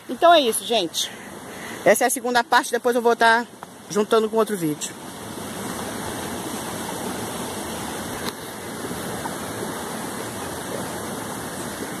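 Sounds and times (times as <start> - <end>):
waterfall and river rushing: 0.0 - 12.0.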